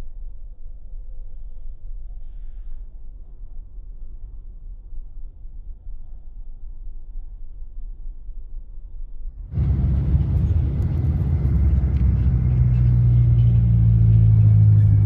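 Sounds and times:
bus engine drone: 0:00.0 - 0:15.0
road rumble: 0:09.3 - 0:15.0.

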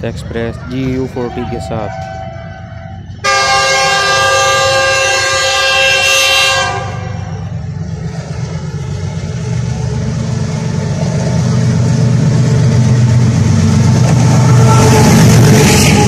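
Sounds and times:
locomotive engine rumble: 0:00.0 - 0:16.0
train horn blast: 0:03.2 - 0:07.3.

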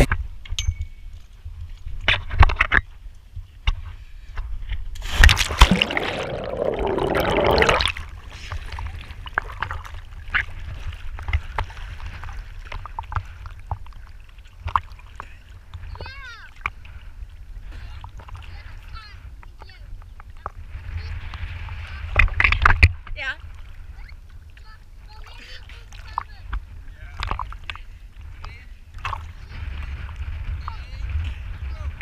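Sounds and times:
water sloshing against hull: 0:01.2 - 0:31.6
water splashing and gurgling: 0:05.0 - 0:18.6.

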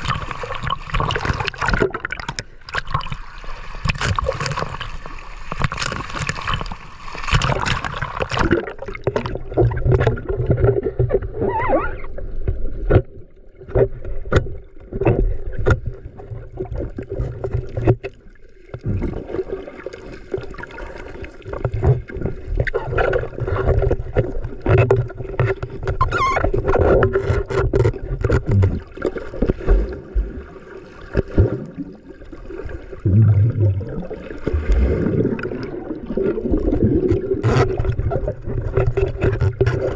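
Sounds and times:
water sloshing around boat: 0:00.0 - 0:33.2, 0:34.0 - 0:39.9
short knocks and splashes: 0:03.8 - 0:11.2, 0:31.1 - 0:31.8.

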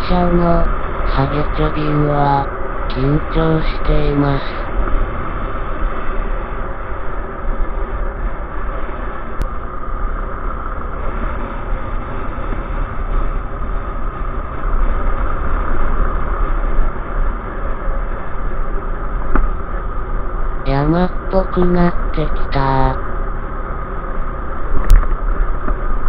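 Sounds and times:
wind rumble on microphone: 0:00.0 - 0:21.3, 0:23.0 - 0:26.0
motorcycle running at speed: 0:07.3 - 0:20.2.

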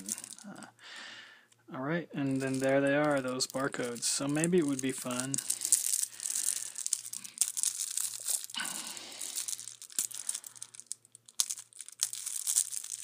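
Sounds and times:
plastic wrap crinkling and tearing: 0:00.0 - 0:00.5, 0:02.3 - 0:13.0.

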